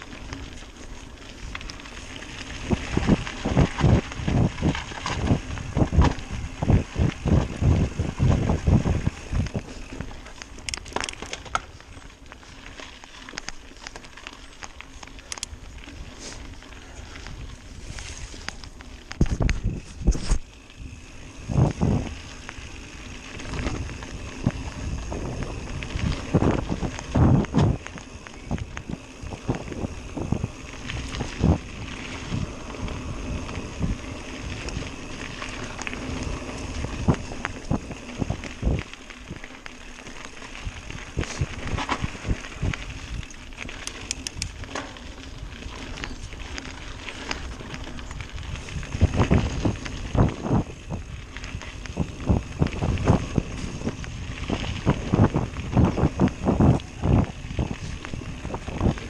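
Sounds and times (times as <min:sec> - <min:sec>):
wind noise on microphone: 0:00.0 - 0:12.9, 0:15.2 - 0:59.0
bike tyres rumbling on dirt: 0:00.0 - 0:59.0
bike knocks and rattles: 0:02.4 - 0:12.1, 0:23.3 - 0:59.0.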